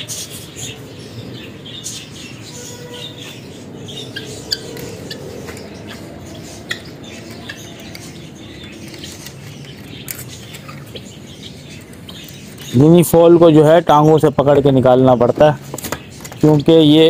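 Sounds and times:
small birds chirping: 0:00.0 - 0:17.0.

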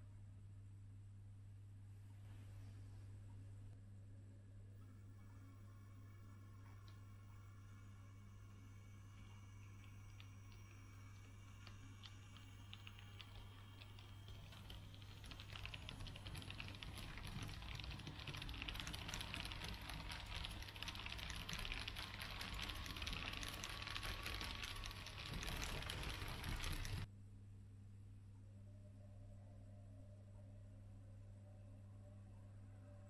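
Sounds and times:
model train wheels clicking on rails: 0:12.4 - 0:27.1.

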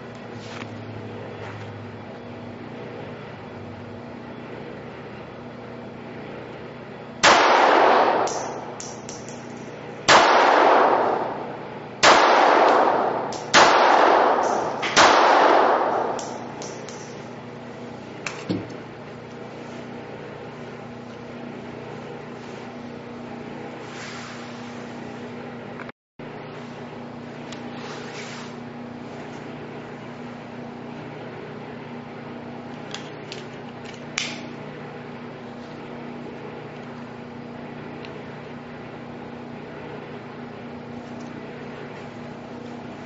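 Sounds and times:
pistol shots echoing indoors: 0:07.2 - 0:09.4, 0:10.1 - 0:17.2.

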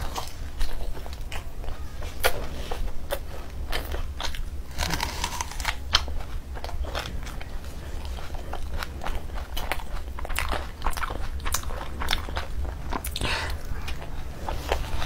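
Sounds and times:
wet chewing and smacking: 0:00.0 - 0:15.0
crisp crunches of onion bites: 0:03.8 - 0:07.0.

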